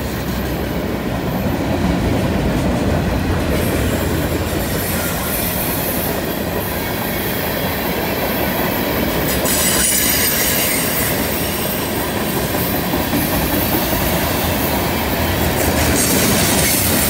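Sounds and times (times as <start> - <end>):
train wheels clattering on rails: 0.0 - 17.0
faint wheel squeal: 9.4 - 11.7.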